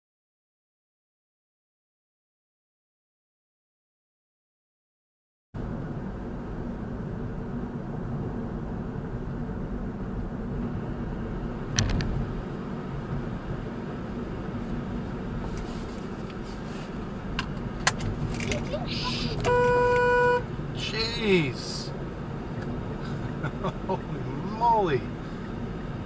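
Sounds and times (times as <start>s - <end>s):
car road and engine noise: 5.6s - 26.0s.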